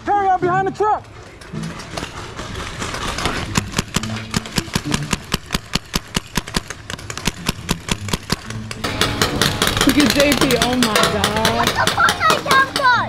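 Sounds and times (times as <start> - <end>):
paintball markers firing: 2.9 - 12.8.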